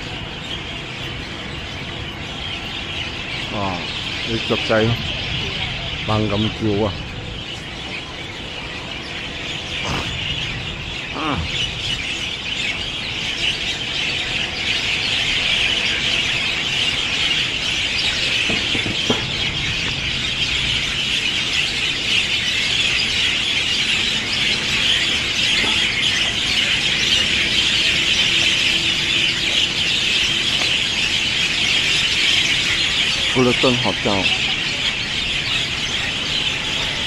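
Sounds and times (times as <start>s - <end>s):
chorus of birds calling: 0.0s - 37.0s.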